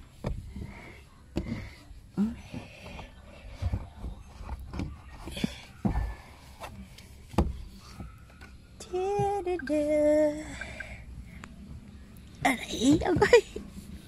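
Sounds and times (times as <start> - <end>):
handling knocks and thumps: 0.0 - 9.6, 12.4 - 13.7.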